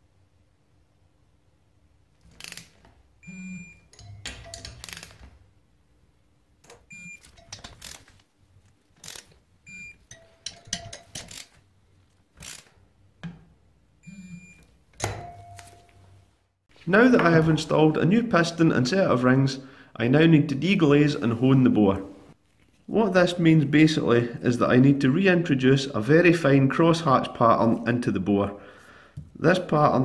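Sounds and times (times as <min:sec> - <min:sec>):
metal tools clinking: 0:03.9 - 0:05.2, 0:07.2 - 0:08.1, 0:10.0 - 0:11.6.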